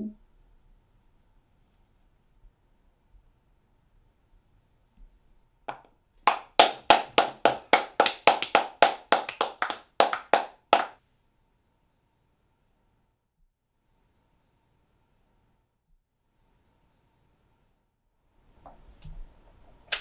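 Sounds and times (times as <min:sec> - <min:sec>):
hand claps: 0:05.7 - 0:11.0.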